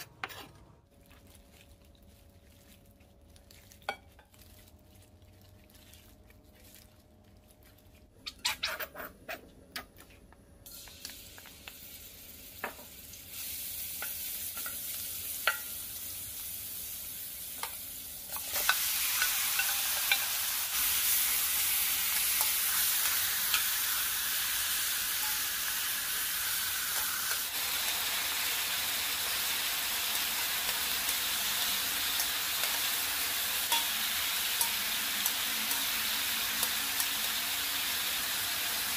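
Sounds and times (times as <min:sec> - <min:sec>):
meat sizzling in a pan: 0:10.7 - 0:38.9.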